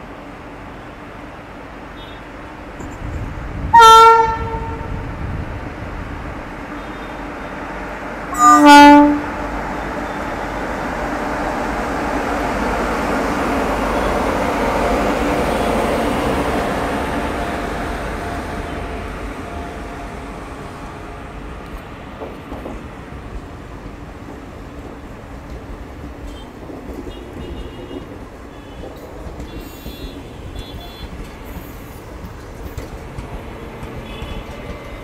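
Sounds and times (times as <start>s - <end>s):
train rolling on rails: 0.0s - 35.0s
locomotive horn: 3.7s - 5.0s, 8.3s - 10.5s, 27.1s - 31.2s.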